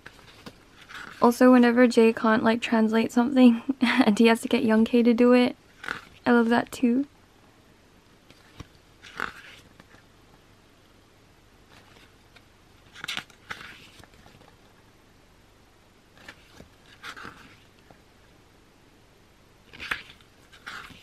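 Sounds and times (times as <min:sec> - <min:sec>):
paper pages turning: 0:00.0 - 0:01.2, 0:08.3 - 0:10.0, 0:11.7 - 0:14.8, 0:16.2 - 0:18.0, 0:19.7 - 0:21.0.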